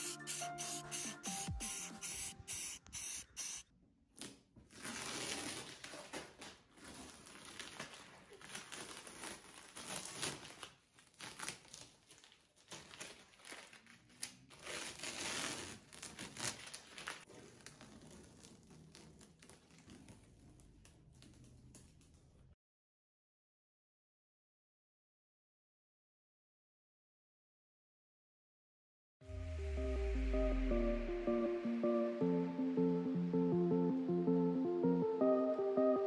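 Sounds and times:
masking tape tearing and peeling: 0.0s - 3.6s, 4.2s - 21.9s
spray paint can hissing: 0.0s - 3.6s.

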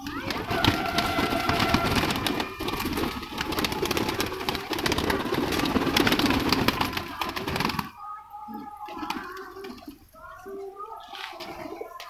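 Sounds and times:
pigeons flapping wings: 0.0s - 8.1s, 8.8s - 10.0s.

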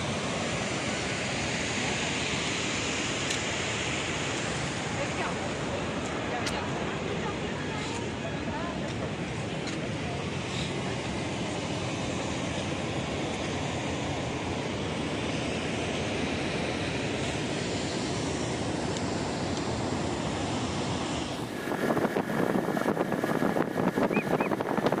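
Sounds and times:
steady rushing noise: 0.0s - 25.0s
fluttering wind on microphone: 21.2s - 25.0s.

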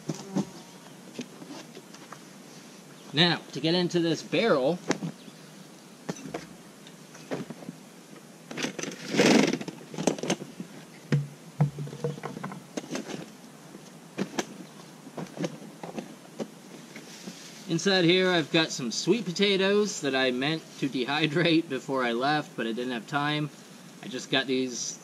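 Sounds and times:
noisy scrape or rustle: 0.0s - 2.9s, 8.5s - 13.3s, 15.3s - 18.4s.

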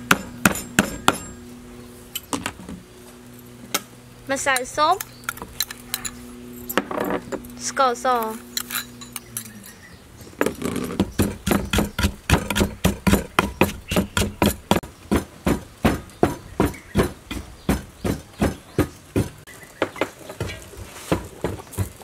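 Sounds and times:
pestle pounding in a mortar: 0.0s - 1.4s, 10.9s - 22.0s.

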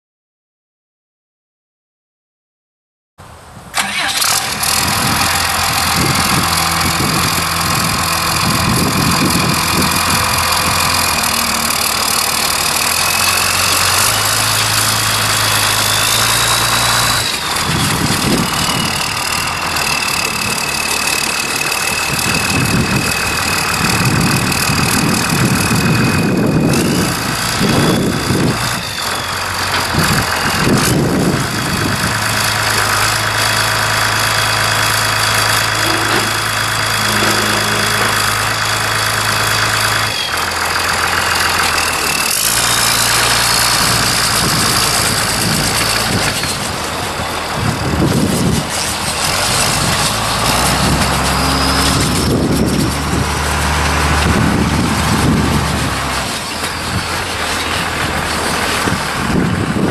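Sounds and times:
diesel engine running: 3.8s - 59.9s
high whine: 35.4s - 40.4s
uneven low rumble: 35.7s - 39.4s.

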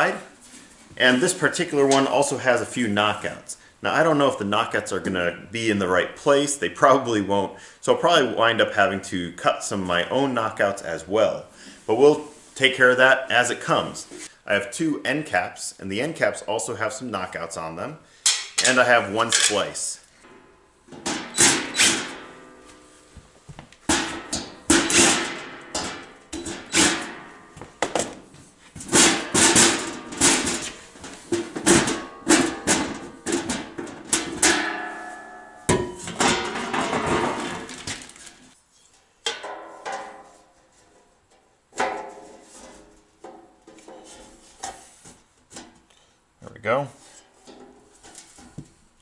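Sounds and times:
sheet metal clanking: 18.3s - 22.9s, 23.9s - 38.5s, 39.3s - 40.9s.

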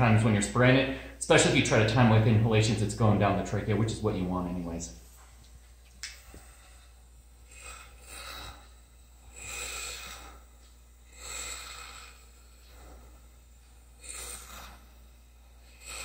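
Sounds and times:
hissing mouth breaths: 6.0s - 16.0s.

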